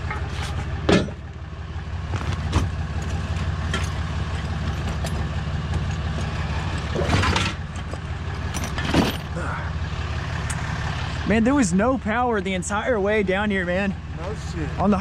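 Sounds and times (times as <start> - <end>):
metal clanks of tow gear: 0.0 - 1.4, 2.1 - 9.6
truck engine idling: 0.0 - 15.0.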